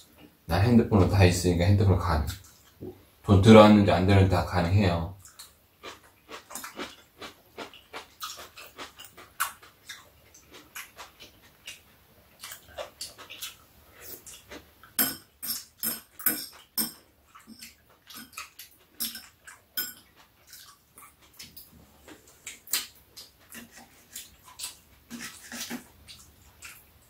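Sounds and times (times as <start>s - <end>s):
chewing and lip-smacking: 5.2s - 15.0s, 16.5s - 27.0s.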